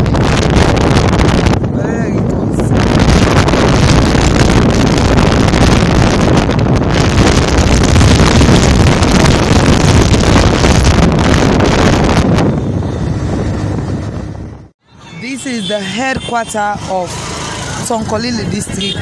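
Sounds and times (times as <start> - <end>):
wind buffeting microphone: 0.0 - 14.7
vehicle road noise: 0.0 - 19.0.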